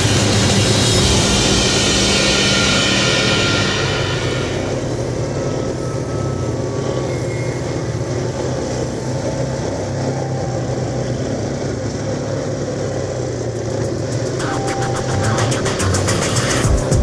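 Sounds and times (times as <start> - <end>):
atv engine running: 5.6 - 17.0.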